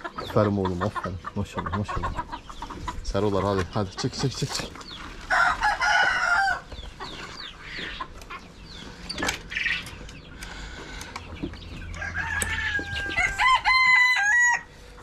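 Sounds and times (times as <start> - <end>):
chickens clucking and squawking: 0.0 - 15.0
rooster crowing: 5.3 - 6.7, 11.8 - 14.7.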